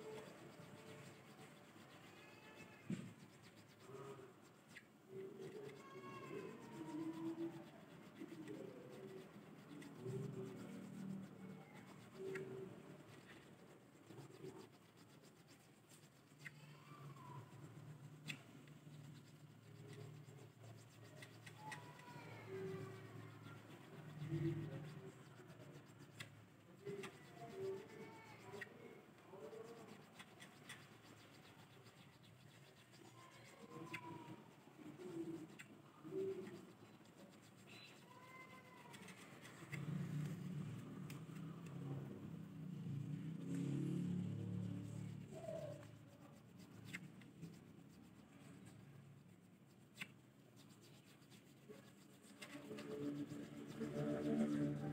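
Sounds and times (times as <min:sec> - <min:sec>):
wavering animal calls: 0:00.0 - 0:18.4, 0:19.2 - 0:40.7, 0:44.8 - 0:46.9
file scraping: 0:00.0 - 0:41.2.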